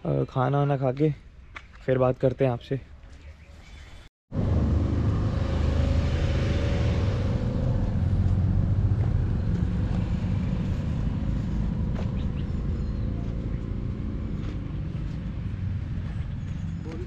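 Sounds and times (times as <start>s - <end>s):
car driving rumble: 4.3s - 17.0s.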